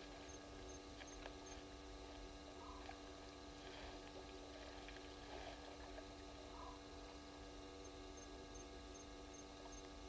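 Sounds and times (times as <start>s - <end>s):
faint electrical hum: 0.0s - 10.0s.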